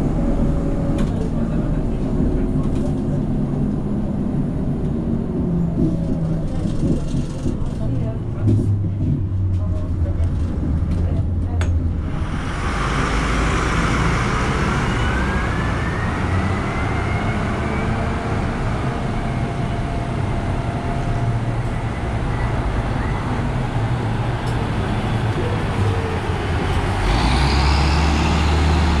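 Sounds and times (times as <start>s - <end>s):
bus engine and road noise: 0.0s - 29.0s
rising whine: 12.0s - 20.3s.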